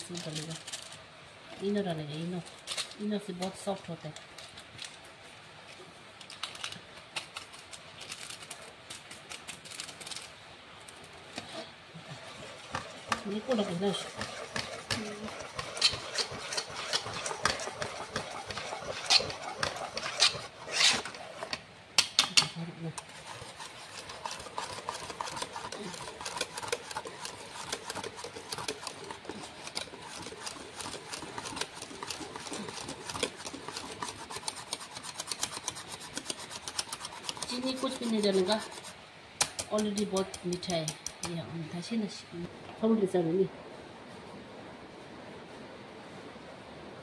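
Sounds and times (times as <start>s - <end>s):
whisk clicking against metal bowl: 12.7s - 22.4s, 23.0s - 41.4s.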